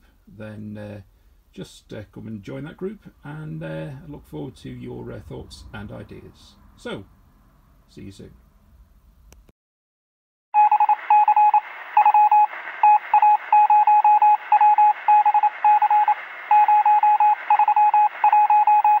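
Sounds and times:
morse code beeps: 0:10.6 - 0:19.0
radio static: 0:10.8 - 0:19.0.

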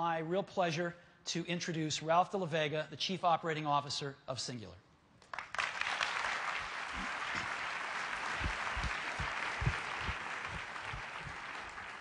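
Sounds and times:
audience applauding: 0:05.3 - 0:12.0
low thumps: 0:08.4 - 0:11.4.

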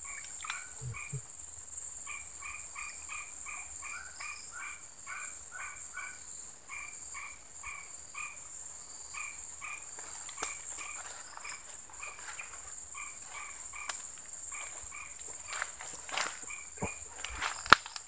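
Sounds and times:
high-pitched insect drone: 0:00.0 - 0:18.0
two-pitched animal call: 0:00.4 - 0:01.3
footsteps through undergrowth: 0:09.6 - 0:18.0.

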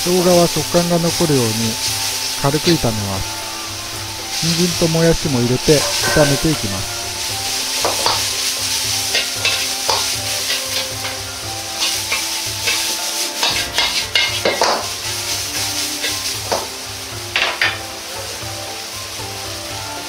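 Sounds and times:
vegetables sizzling in a wok: 0:00.0 - 0:20.0
metal ladle scraping and knocking pan: 0:05.6 - 0:14.9, 0:17.4 - 0:17.8.

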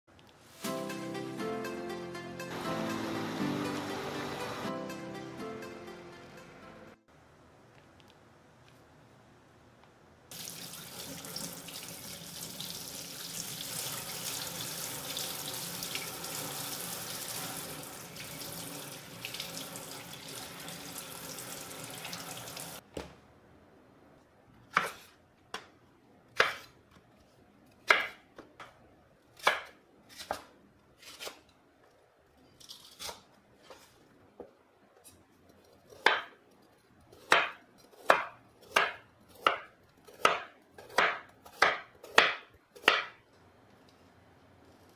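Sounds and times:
knife chopping on cutting board: 0:24.7 - 0:25.1, 0:26.4 - 0:26.7, 0:27.8 - 0:28.2, 0:29.4 - 0:31.4, 0:35.9 - 0:36.4, 0:37.1 - 0:43.2.

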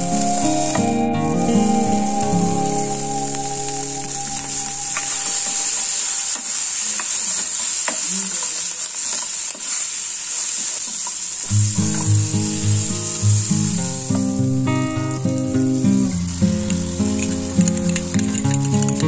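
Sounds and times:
background music: 0:00.0 - 0:05.8
vegetables sizzling in hot oil: 0:00.0 - 0:19.0.

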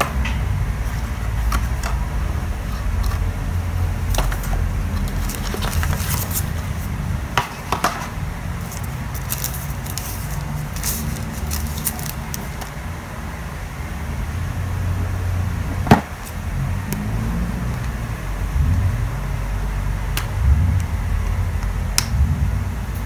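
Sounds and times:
steady low rumble: 0:00.0 - 0:23.0
cardboard packaging rustling: 0:00.8 - 0:12.8.

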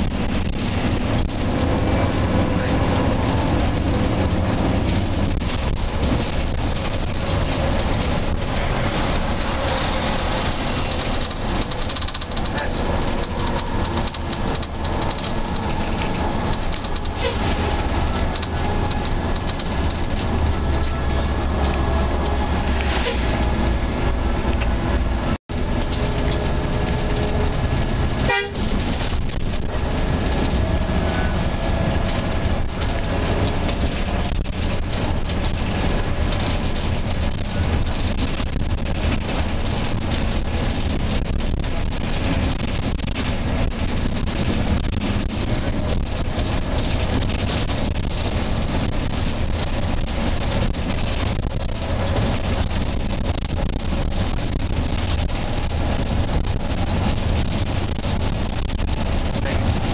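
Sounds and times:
bus engine and road rumble: 0:00.0 - 0:59.9.

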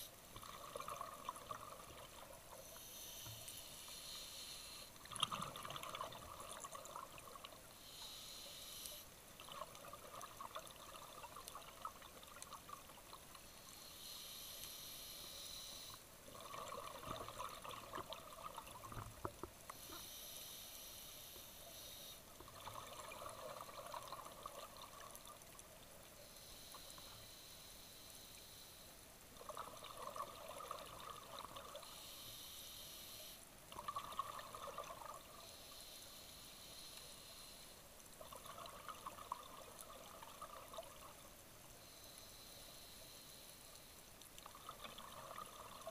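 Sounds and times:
exhaled bubbles burbling: 0:00.4 - 0:02.4, 0:05.0 - 0:07.6, 0:16.3 - 0:19.0, 0:22.5 - 0:25.1, 0:29.4 - 0:31.8, 0:33.8 - 0:35.3, 0:38.3 - 0:41.1, 0:44.5 - 0:45.9
regulator hissing inhale: 0:02.6 - 0:05.0, 0:07.7 - 0:09.2, 0:13.5 - 0:16.0, 0:19.7 - 0:22.2, 0:26.2 - 0:28.9, 0:31.8 - 0:33.4, 0:35.4 - 0:37.8.

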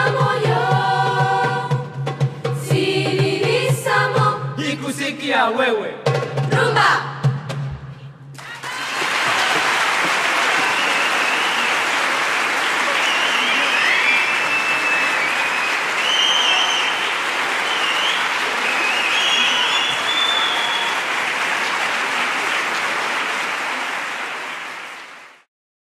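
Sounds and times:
cheering shouts: 0:08.4 - 0:24.6
audience applauding: 0:08.4 - 0:25.5.

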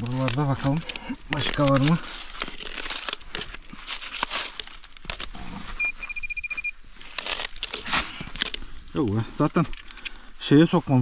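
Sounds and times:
crunching and rustling on brushy ground: 0:00.0 - 0:06.0, 0:06.8 - 0:11.0
fast electronic beeping: 0:05.8 - 0:06.7.

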